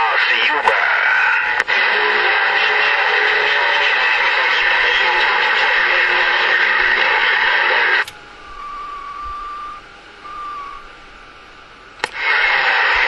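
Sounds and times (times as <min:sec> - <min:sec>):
radio static hiss: 0:00.0 - 0:13.0
whistle-like tone: 0:08.5 - 0:10.9
sharp click: 0:12.0 - 0:12.2.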